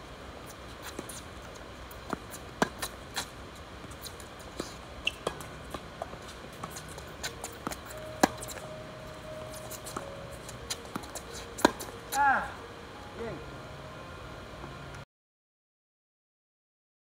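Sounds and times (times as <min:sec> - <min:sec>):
tennis ball bouncing: 0:00.8 - 0:12.5
tennis rackets hitting ball: 0:01.9 - 0:12.5.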